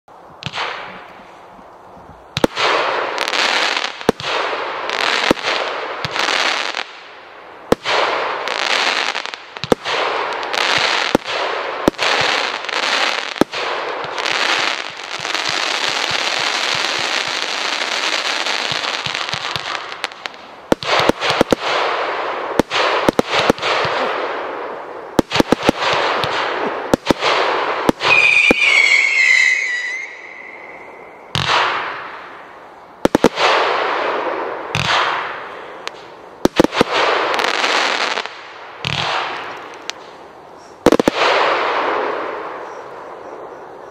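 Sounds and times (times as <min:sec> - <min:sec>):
long steady firework hiss: 0:00.1 - 0:43.9
firework shots with hissing tails: 0:00.4 - 0:01.4, 0:02.3 - 0:43.0
falling firework whistle: 0:27.9 - 0:32.1.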